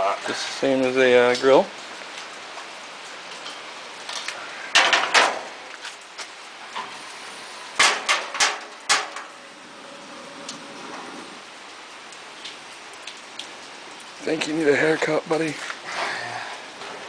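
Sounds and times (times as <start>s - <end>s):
gas burner catching: 7.8s - 9.4s.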